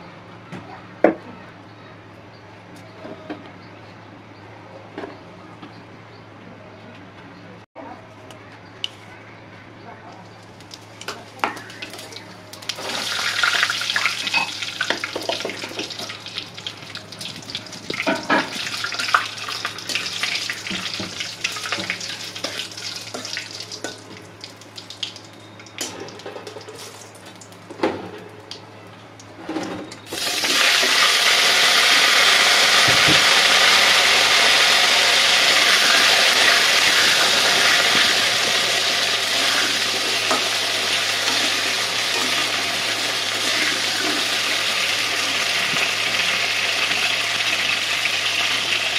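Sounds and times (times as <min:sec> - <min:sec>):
spices crackling in hot oil: 0:10.3 - 0:27.8, 0:30.0 - 0:48.9
potatoes sizzling in oil: 0:10.6 - 0:25.0, 0:30.1 - 0:48.9.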